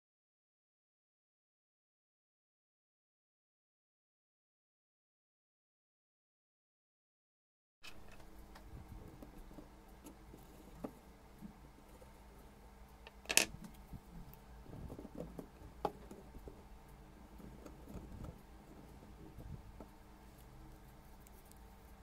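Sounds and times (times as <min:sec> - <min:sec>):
low steady hum: 0:07.8 - 0:22.0
small pieces clicking on tabletop: 0:13.1 - 0:13.6.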